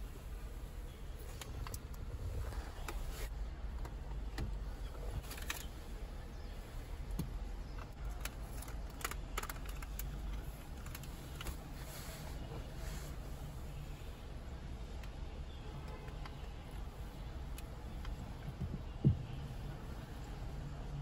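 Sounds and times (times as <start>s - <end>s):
steady low rumble: 0.0s - 15.8s
plastic parts clicking and knocking: 7.1s - 11.6s.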